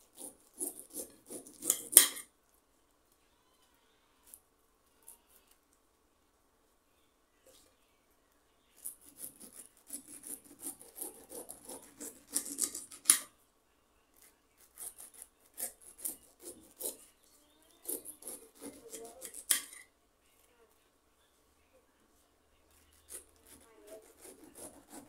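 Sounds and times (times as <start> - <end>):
knife sawing through pineapple rind: 0.0 - 2.2, 9.0 - 13.0, 14.7 - 17.0, 17.8 - 19.6, 22.9 - 25.0.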